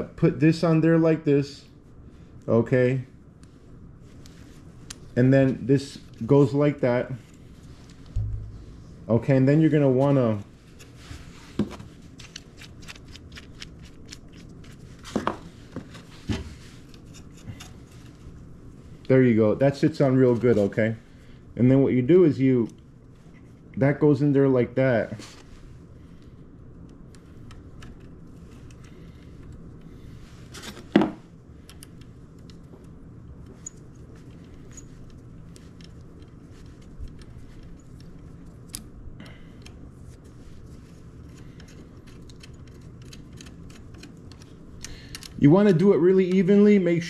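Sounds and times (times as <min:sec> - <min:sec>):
low steady hum: 0:00.0 - 0:47.0
sharp knock: 0:08.2 - 0:08.8.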